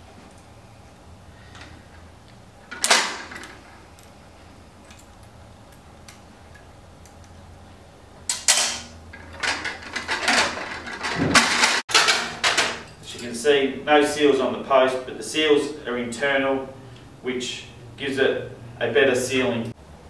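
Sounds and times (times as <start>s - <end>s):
metal clicks and knocks: 8.3s - 13.3s
metal clack: 8.3s - 13.4s.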